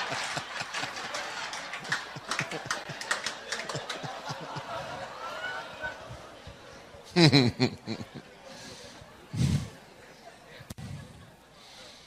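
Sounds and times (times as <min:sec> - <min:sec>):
hand claps: 0:00.0 - 0:04.5
audience laughing: 0:00.0 - 0:11.5.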